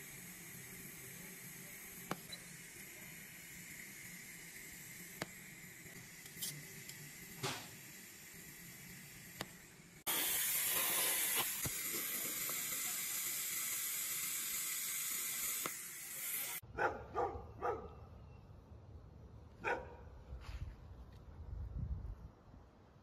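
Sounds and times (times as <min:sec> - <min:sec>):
welding arc hissing: 0:00.0 - 0:16.6.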